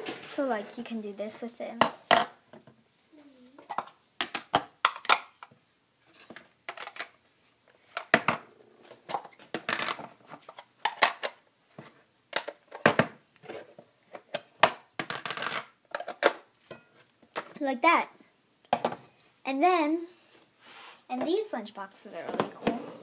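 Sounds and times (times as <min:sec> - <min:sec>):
plastic boxes clattering: 0:07.9 - 0:16.4.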